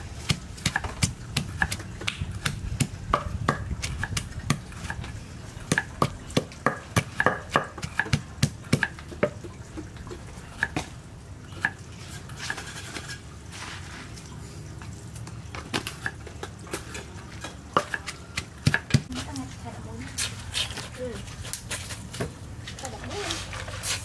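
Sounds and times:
wooden pestle pounding in mortar: 0.2 - 5.0, 5.7 - 9.4, 17.8 - 19.1.

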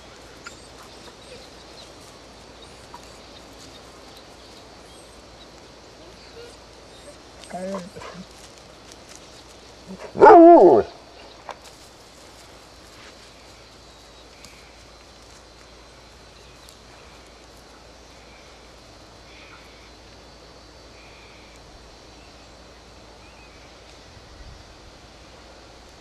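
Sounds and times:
steady hiss: 0.0 - 26.0
light ticks: 14.3 - 15.8.

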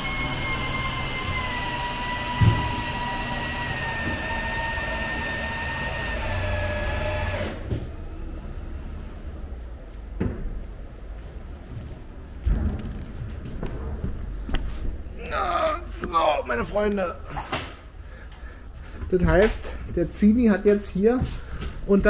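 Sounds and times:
electric motor whine: 0.0 - 7.6.

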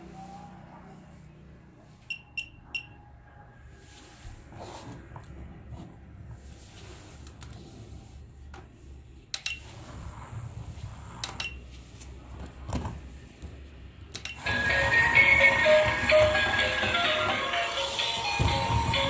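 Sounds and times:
electronic toy tune: 14.4 - 19.0.

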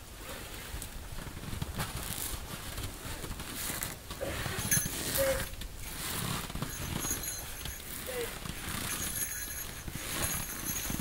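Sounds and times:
canvas tent rustling and scraping: 0.2 - 11.0
faint squeaks: 4.2 - 11.0.

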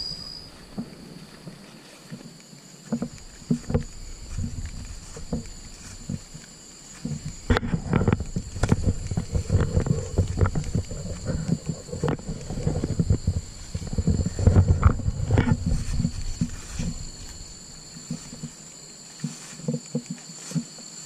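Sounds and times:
steady high thin tone: 0.0 - 1.4
footsteps through tall grass: 0.5 - 21.0.

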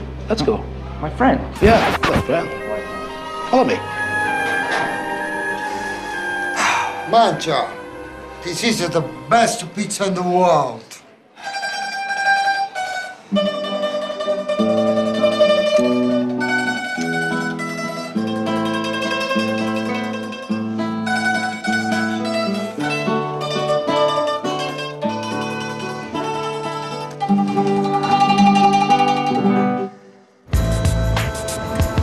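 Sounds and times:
acoustic guitar chords: 1.6 - 5.2, 13.2 - 32.0
mandolin plucking: 1.6 - 10.8, 11.4 - 30.0.

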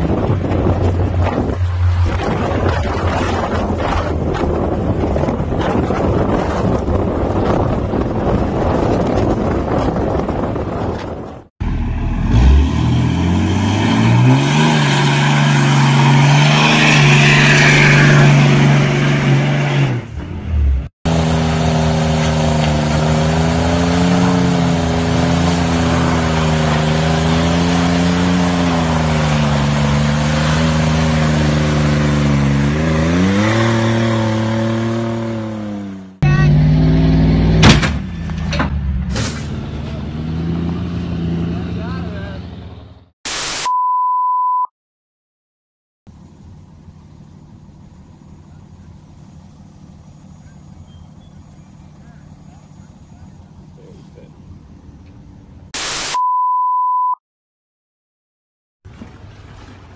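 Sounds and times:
diesel truck engines revving: 0.0 - 43.1, 46.1 - 55.8
sharp crack: 37.6 - 39.7.

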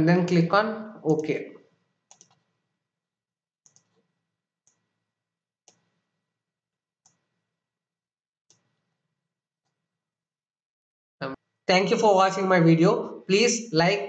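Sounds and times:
computer mouse clicks: 2.1 - 2.6, 3.6 - 5.0, 5.7 - 6.1, 8.5 - 8.9.

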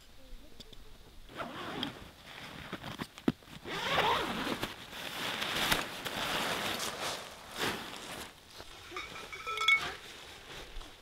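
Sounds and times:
zipper rasping: 1.3 - 3.0, 3.6 - 4.7.

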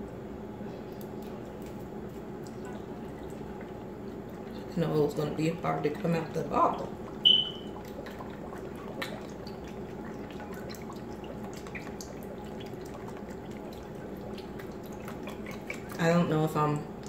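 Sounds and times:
sauce dripping and spattering: 6.9 - 16.0
short high squeak: 7.2 - 7.7.

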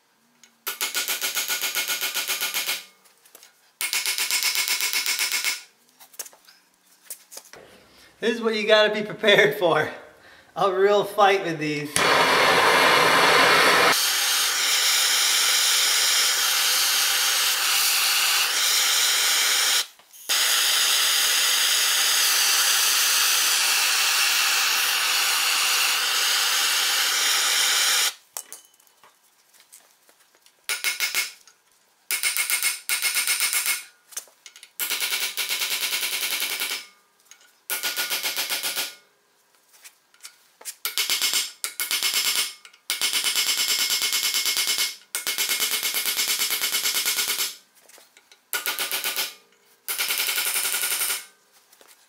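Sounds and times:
gas torch hissing: 11.9 - 28.2.

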